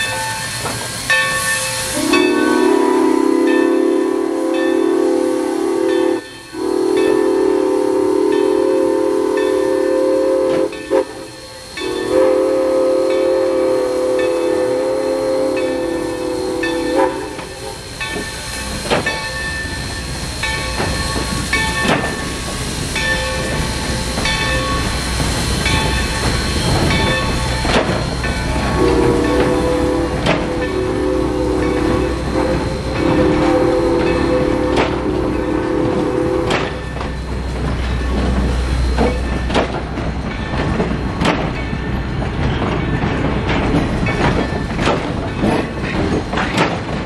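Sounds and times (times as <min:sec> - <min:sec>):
crossing bell ringing: 0:00.0 - 0:05.2, 0:05.8 - 0:07.6, 0:08.2 - 0:09.9, 0:10.7 - 0:12.2, 0:14.2 - 0:14.7, 0:15.5 - 0:46.0
steam locomotive whistle: 0:00.0 - 0:18.5, 0:23.1 - 0:37.4
train rumbling past: 0:00.0 - 0:47.0.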